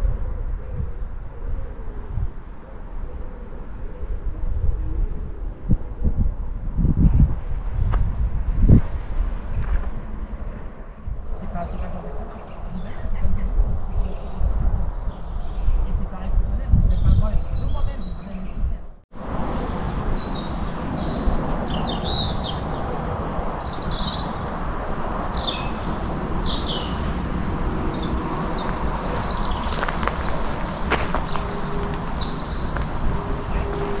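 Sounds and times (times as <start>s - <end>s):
outdoor background noise: 0.0s - 34.0s
small birds chirping: 11.4s - 27.3s, 27.9s - 34.0s.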